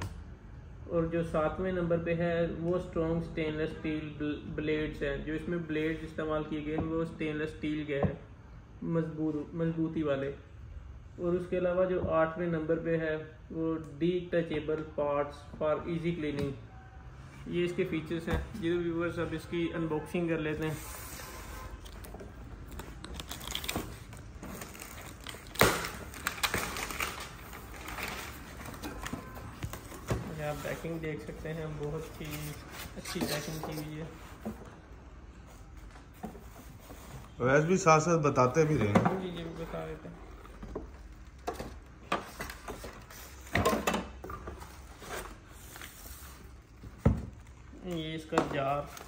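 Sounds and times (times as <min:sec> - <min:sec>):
plastic shrink wrap crinkling: 0:21.9 - 0:29.0.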